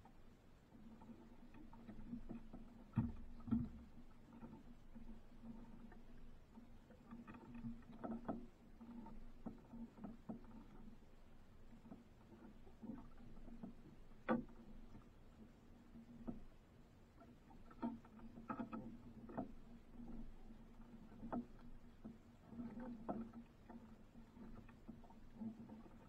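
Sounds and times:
faint steady hum: 0.0s - 26.0s
light knocks and clicks: 1.0s - 10.8s.

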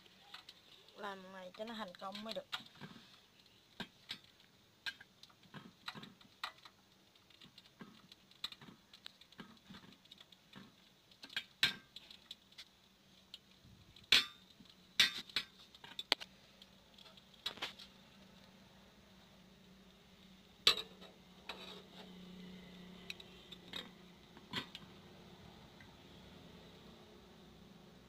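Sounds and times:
chopsticks clicking against metal bowl: 1.5s - 2.6s.

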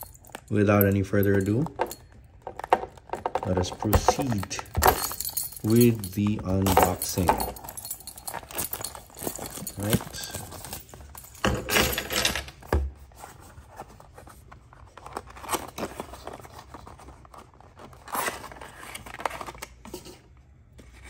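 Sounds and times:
cardboard box rustling and tearing: 13.2s - 19.7s.

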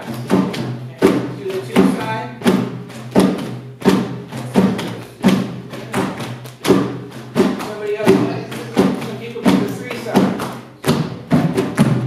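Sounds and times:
drum kit beat: 0.0s - 12.0s.

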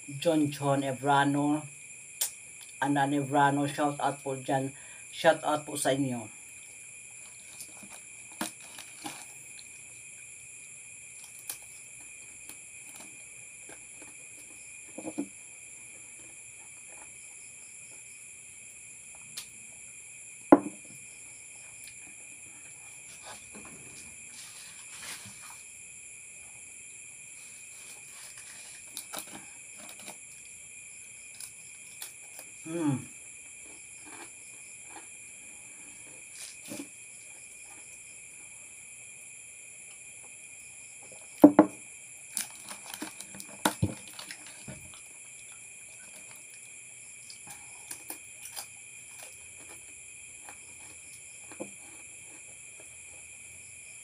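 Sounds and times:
insects chirring: 0.0s - 54.0s.

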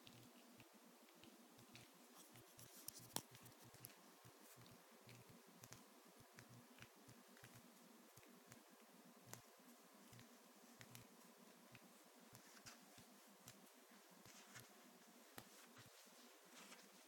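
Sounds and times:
faint small clicks: 9.2s - 14.7s.

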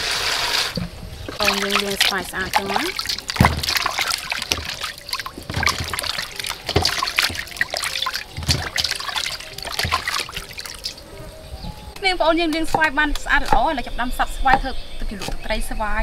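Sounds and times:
water dripping and trickling: 0.6s - 12.0s
splashing in bowl of water: 0.7s - 11.3s.

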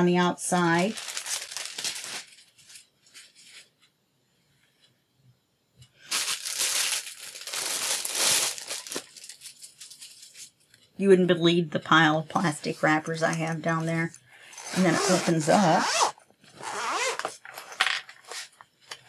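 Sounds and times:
plastic wrapper crinkling: 0.5s - 3.8s, 6.0s - 10.9s.

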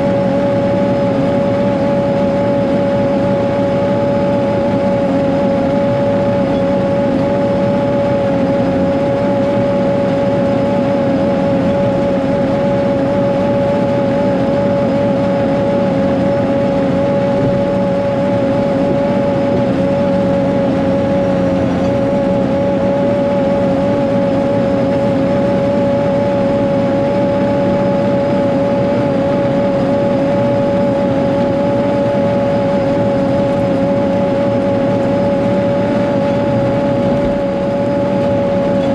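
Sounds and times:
diesel engine running: 0.0s - 38.9s
steady mechanical whine: 0.0s - 38.9s.

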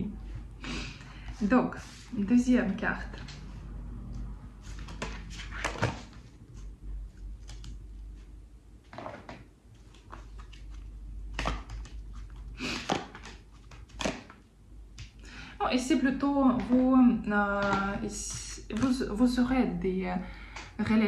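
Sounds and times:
cards tapping and swishing: 4.6s - 6.7s, 8.9s - 14.4s.

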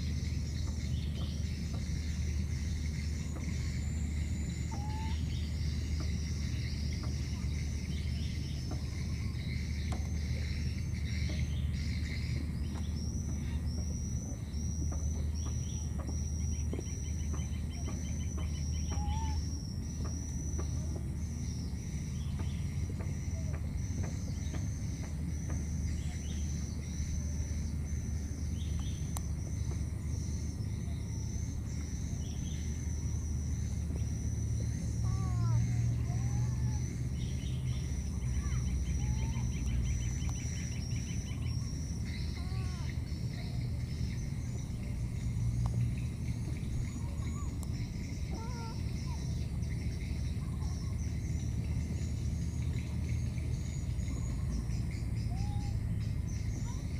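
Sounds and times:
constant low rumble: 0.0s - 56.9s
faint bird-like whistles: 0.0s - 56.9s
insects chirping: 0.0s - 56.9s.

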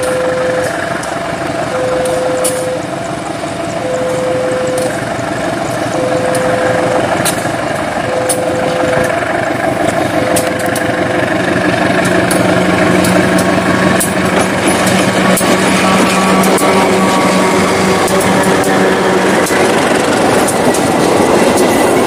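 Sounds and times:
locomotive engine: 0.0s - 22.0s
wheels clicking over track: 0.0s - 22.0s
single-pitched beep: 1.7s - 2.9s, 3.8s - 5.0s, 6.0s - 6.9s.

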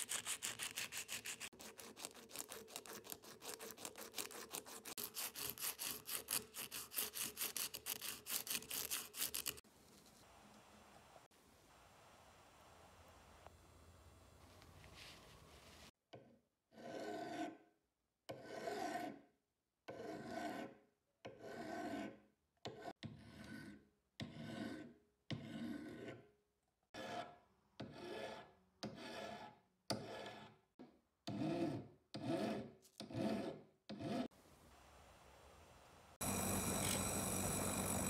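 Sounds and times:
steel file rasping on metal: 0.0s - 9.6s, 16.8s - 17.6s, 18.3s - 19.2s, 19.9s - 26.2s, 26.9s - 30.6s, 31.3s - 34.3s.

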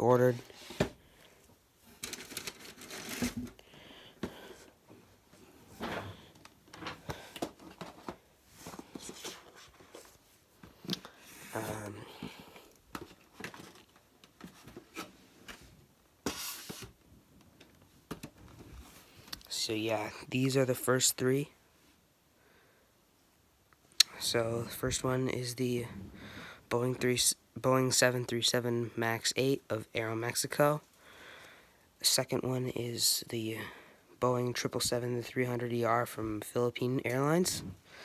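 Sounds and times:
cardboard and packing rustling: 1.8s - 3.6s, 5.2s - 12.0s, 12.9s - 17.0s.

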